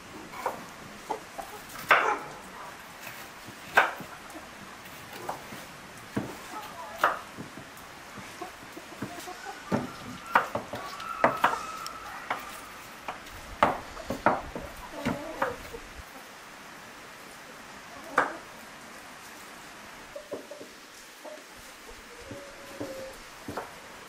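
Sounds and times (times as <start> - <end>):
hen clucking: 0.2 - 2.8, 6.3 - 7.4, 8.1 - 16.3, 20.1 - 23.6.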